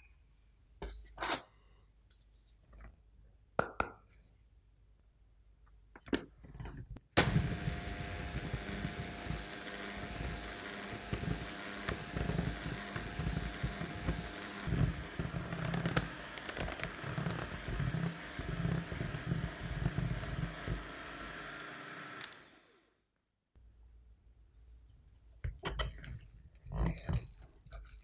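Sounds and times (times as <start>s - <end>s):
hand mixer motor whine: 7.2s - 23.0s.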